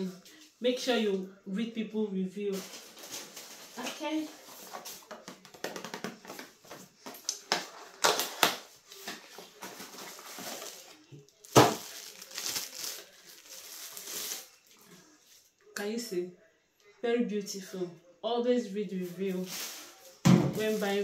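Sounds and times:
plastic bag crinkling: 0:02.5 - 0:04.8, 0:07.4 - 0:14.9.

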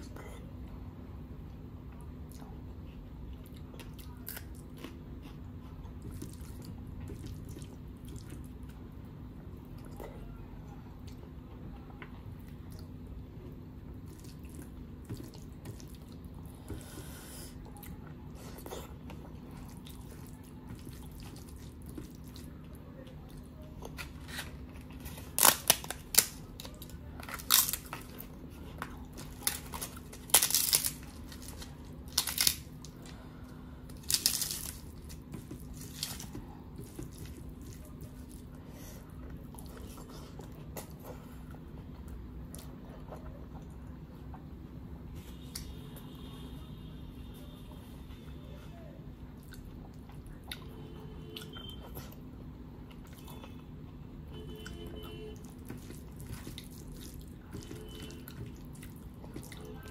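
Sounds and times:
steady low hum: 0:00.0 - 0:59.9
wet eating sounds: 0:01.9 - 0:09.0, 0:11.0 - 0:44.6, 0:49.2 - 0:54.0, 0:54.6 - 0:59.9
crisp wafer cracking: 0:23.9 - 0:28.3, 0:29.1 - 0:33.1, 0:33.9 - 0:38.3.

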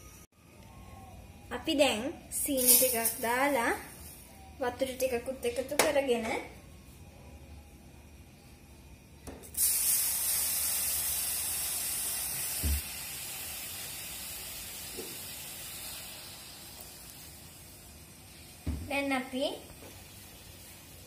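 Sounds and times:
water hissing in hot pan: 0:09.5 - 0:21.0.

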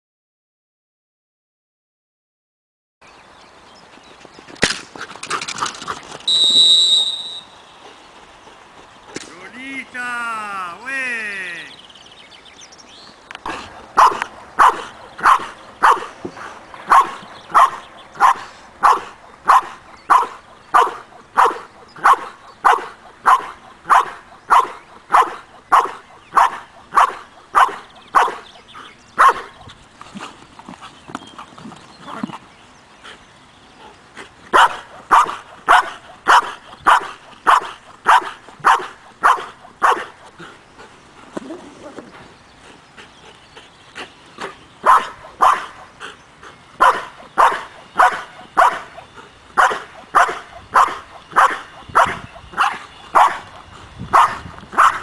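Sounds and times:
dog barking loudly: 0:13.4 - 0:16.2, 0:16.8 - 0:28.5, 0:29.2 - 0:29.6, 0:34.5 - 0:40.2, 0:44.8 - 0:45.9, 0:46.8 - 0:49.0, 0:49.6 - 0:53.5, 0:54.1 - 0:55.0.

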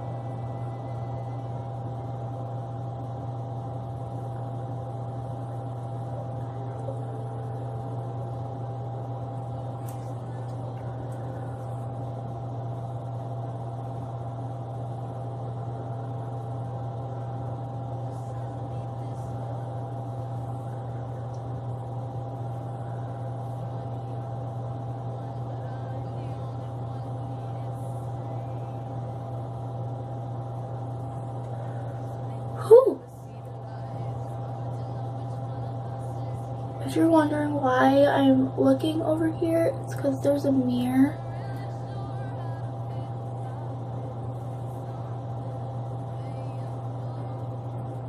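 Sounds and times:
steady low hum: 0:00.0 - 0:48.0.

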